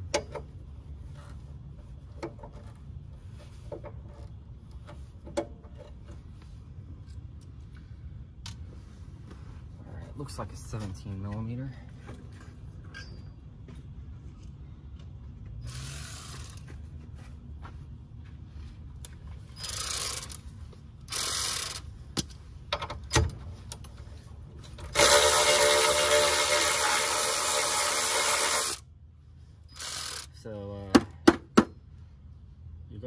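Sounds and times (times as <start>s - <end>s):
hand ratchet ratcheting: 19.6s - 20.4s, 21.1s - 21.8s, 24.9s - 28.8s, 29.7s - 30.4s.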